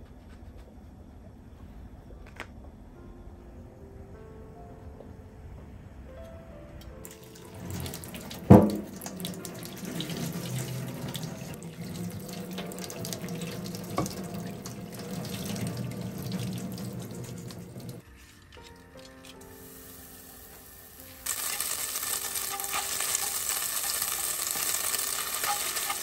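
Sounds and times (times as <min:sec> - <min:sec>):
soft background music: 0:01.4 - 0:26.0
water splashing through colander: 0:07.0 - 0:18.0, 0:21.2 - 0:26.0.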